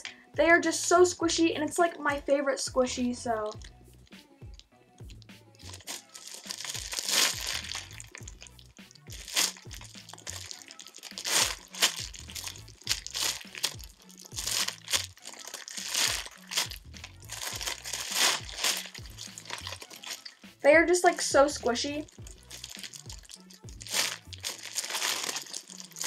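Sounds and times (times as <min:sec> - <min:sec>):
background music: 0:00.0 - 0:26.0
plastic wrapping crinkling: 0:05.1 - 0:20.4, 0:22.0 - 0:26.0.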